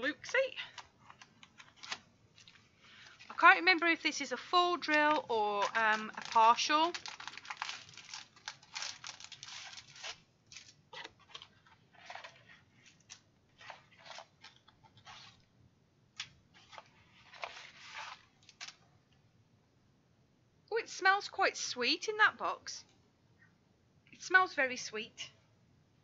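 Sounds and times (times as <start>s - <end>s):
plastic packaging crinkling: 0.6s - 15.5s, 16.2s - 18.8s.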